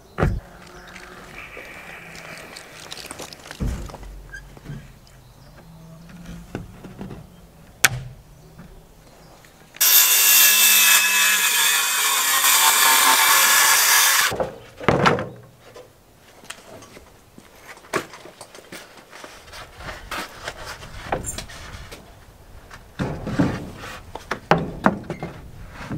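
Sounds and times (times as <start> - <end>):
circular saw cutting plywood: 9.8 - 14.3.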